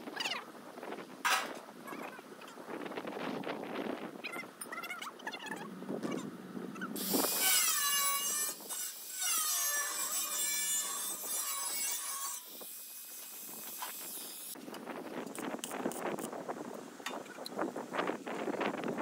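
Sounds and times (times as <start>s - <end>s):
angle grinder cutting metal: 7.0s - 14.6s.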